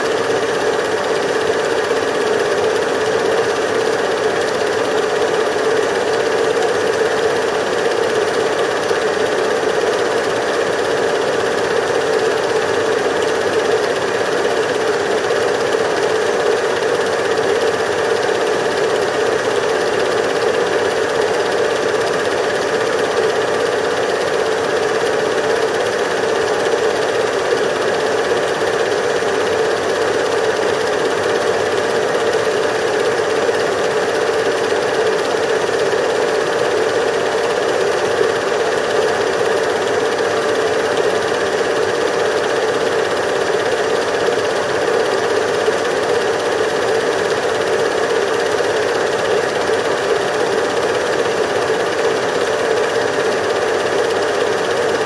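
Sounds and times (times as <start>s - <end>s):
film projector whirring: 0.0s - 55.0s.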